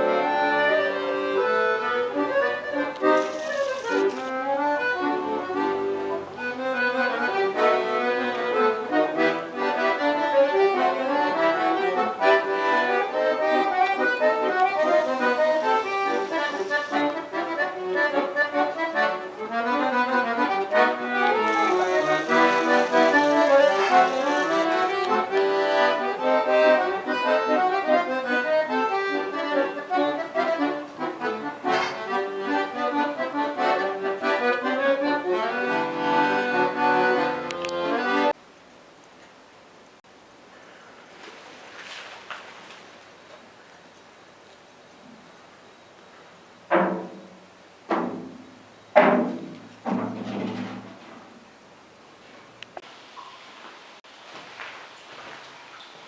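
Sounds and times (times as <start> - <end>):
accordion music: 0.0 - 38.4.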